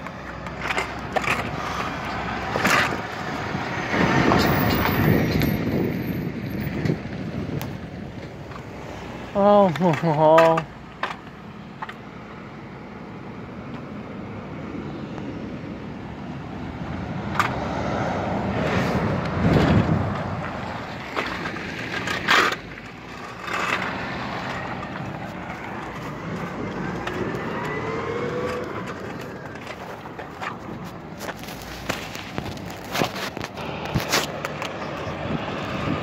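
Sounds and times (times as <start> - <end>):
vehicle driving past: 23.3 - 29.6.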